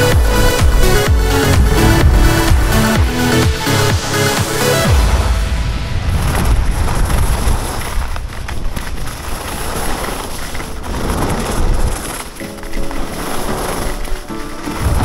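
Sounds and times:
skis scraping on snow: 0.0s - 15.0s
wind on microphone: 5.3s - 12.1s.

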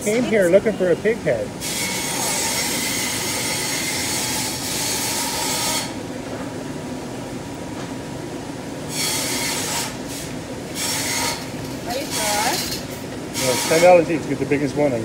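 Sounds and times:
store background noise: 10.8s - 15.0s.

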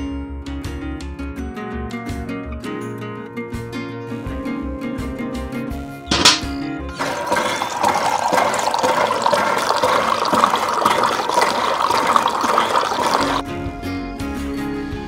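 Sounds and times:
background music: 2.0s - 15.0s
water pouring into metal bucket: 6.1s - 13.4s.

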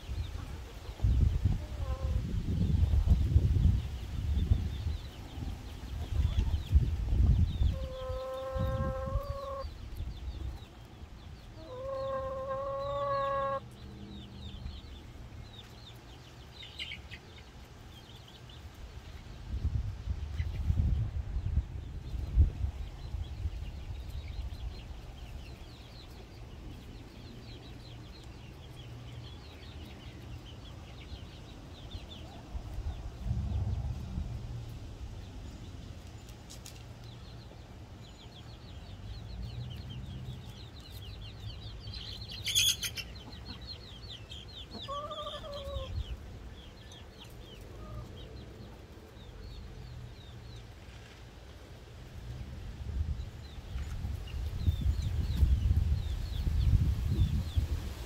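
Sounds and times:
hens clucking softly: 0.3s - 3.2s, 5.7s - 10.6s, 11.5s - 13.8s, 42.4s - 46.2s
drawn-out hen call: 1.5s - 2.4s, 7.6s - 9.9s, 11.5s - 13.8s, 44.6s - 46.1s.

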